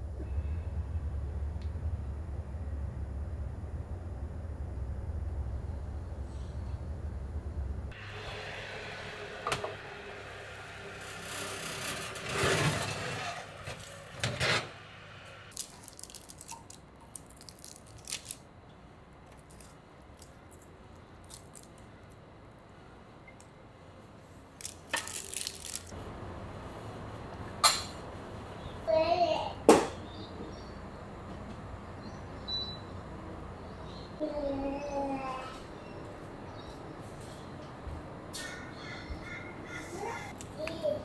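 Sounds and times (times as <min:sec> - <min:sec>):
metal spatula scraping baking tray: 0:10.9 - 0:14.8.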